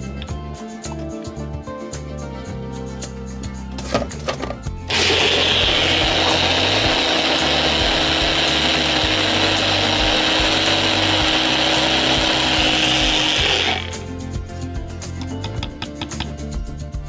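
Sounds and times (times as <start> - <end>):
blender motor running: 4.9 - 14.0.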